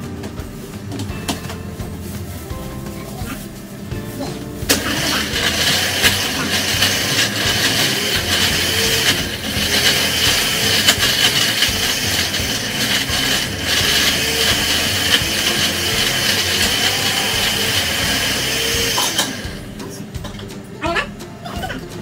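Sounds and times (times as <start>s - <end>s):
electric blender running: 4.7s - 19.8s.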